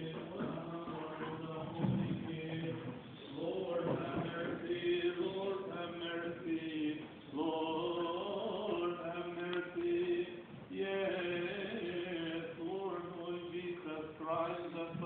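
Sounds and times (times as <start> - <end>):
man chanting a hymn: 0.0 - 15.0.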